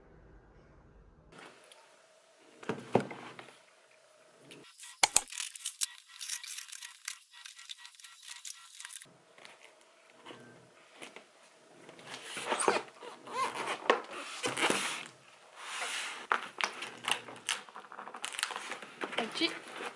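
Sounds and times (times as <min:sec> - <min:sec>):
packing tape ripping: 0:04.7 - 0:09.1, 0:16.6 - 0:19.2.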